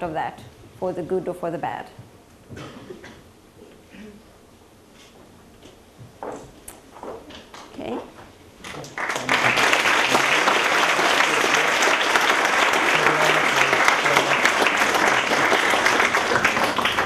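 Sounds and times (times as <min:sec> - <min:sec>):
audience clapping: 0:08.6 - 0:17.0.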